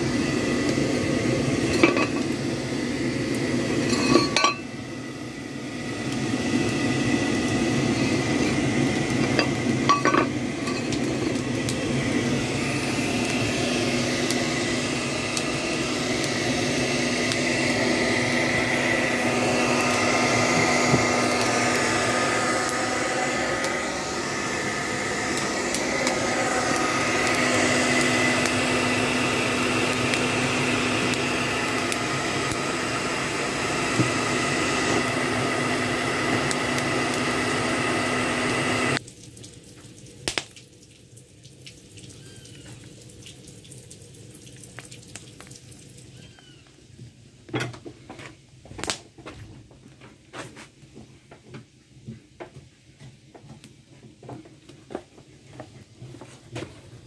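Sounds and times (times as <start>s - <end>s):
hair dryer blowing: 0.0s - 39.0s
fire crackling: 0.0s - 42.0s, 42.8s - 46.6s, 48.7s - 49.0s.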